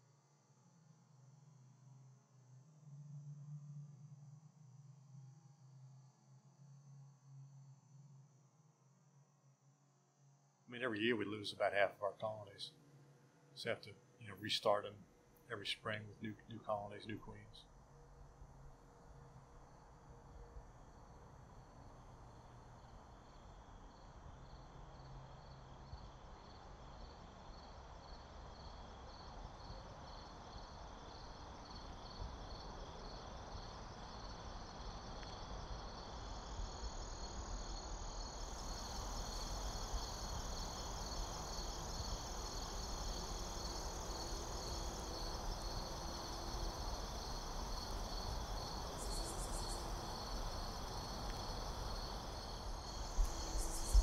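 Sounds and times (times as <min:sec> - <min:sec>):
insect continuous trill: 0:00.0 - 0:54.0
background hiss: 0:10.7 - 0:54.0
insect high chirp: 0:22.4 - 0:54.0.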